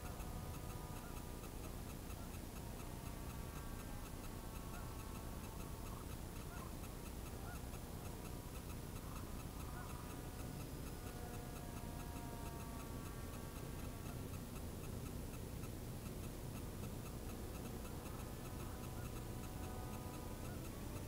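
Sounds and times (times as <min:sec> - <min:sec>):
quiet even ticking: 0:00.0 - 0:21.0.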